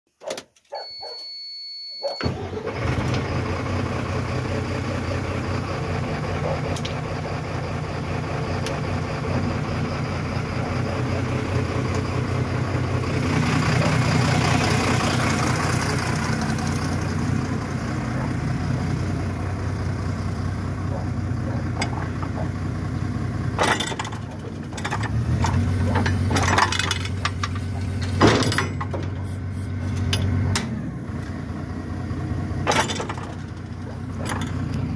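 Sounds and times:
truck engine starting and running: 0:00.2 - 0:34.9
high beep: 0:00.7 - 0:02.3
sharp clanks and knocks: 0:21.5 - 0:22.6, 0:23.6 - 0:30.8, 0:32.6 - 0:34.9.

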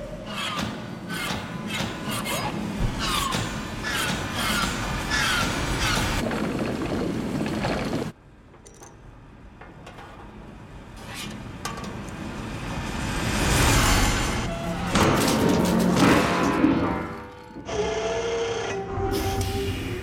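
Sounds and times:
small metallic clinks: 0:08.5 - 0:09.1.

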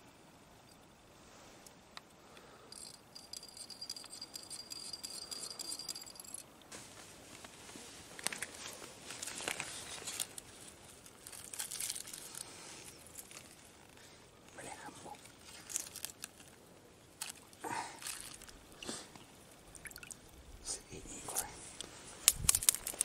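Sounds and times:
water splashing in a bucket: 0:19.7 - 0:20.2.

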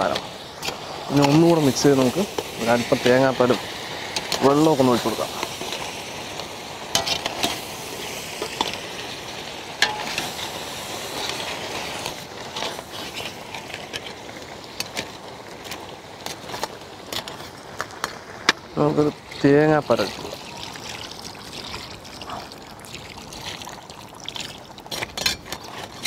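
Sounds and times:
steady sizzle: 0:00.0 - 0:26.0
metal spatula scraping pan: 0:09.8 - 0:10.5, 0:24.9 - 0:26.0.

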